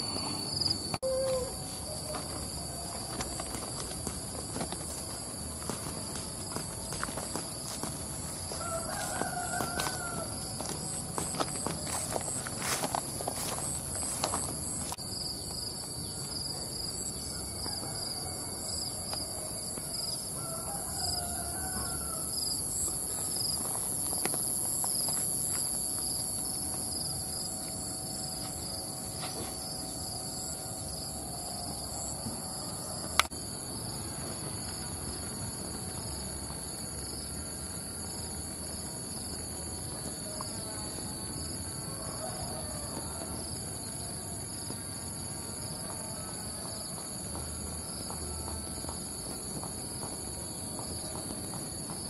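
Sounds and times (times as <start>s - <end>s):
insects chirring: 0.0s - 52.0s
footsteps: 0.9s - 15.8s, 22.8s - 29.8s.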